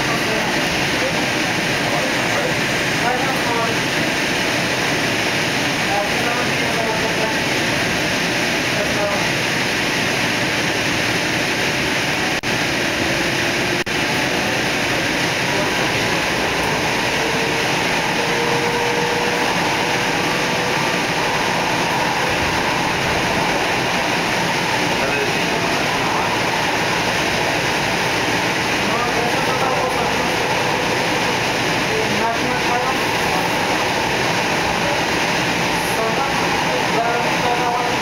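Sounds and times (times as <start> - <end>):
train wheels rumbling on track: 0.0 - 38.0.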